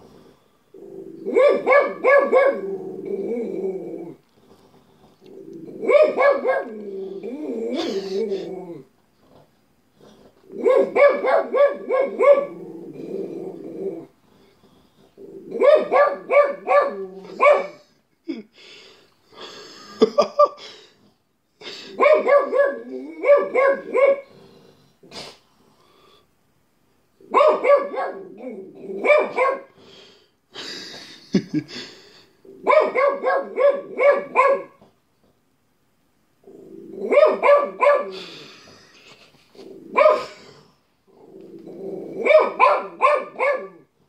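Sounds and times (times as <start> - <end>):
dog barking: 1.3 - 2.6, 5.8 - 6.7, 10.6 - 12.6, 15.6 - 17.8, 22.0 - 24.3, 27.3 - 28.3, 29.0 - 29.7, 32.6 - 34.8, 37.1 - 38.2, 39.9 - 40.4, 42.2 - 43.9.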